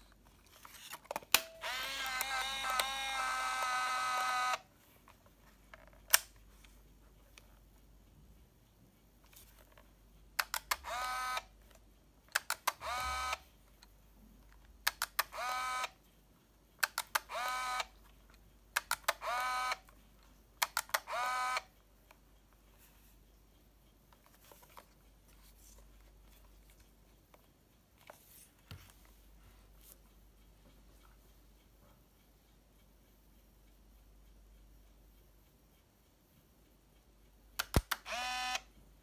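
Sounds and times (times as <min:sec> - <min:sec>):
camera shutter clicks: 0:01.3 - 0:04.6, 0:16.9 - 0:17.9, 0:37.6 - 0:38.7
film winding motor whir: 0:01.4 - 0:04.7, 0:10.8 - 0:11.5, 0:12.7 - 0:13.4, 0:15.3 - 0:16.0, 0:17.2 - 0:17.9, 0:19.0 - 0:19.9, 0:21.0 - 0:21.7, 0:38.0 - 0:38.7.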